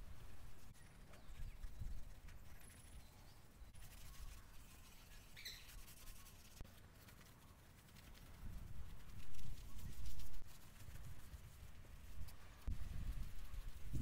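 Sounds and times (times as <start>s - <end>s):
wind rumble on microphone: 0.0s - 3.0s, 8.1s - 14.0s
bird chirp: 0.6s - 6.6s.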